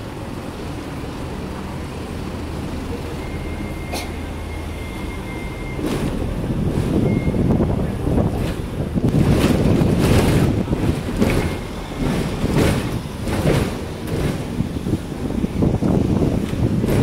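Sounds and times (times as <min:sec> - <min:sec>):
tram rumbling along track: 0:00.0 - 0:17.0
wind buffeting microphone: 0:05.2 - 0:17.0.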